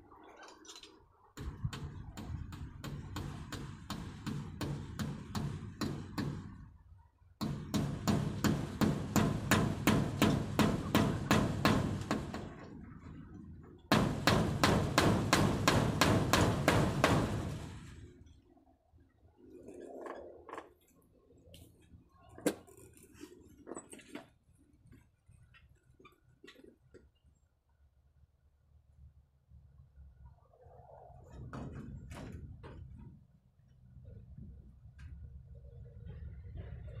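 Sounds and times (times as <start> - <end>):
rapid knocking on wooden frame: 7.4 - 12.6, 13.9 - 17.6.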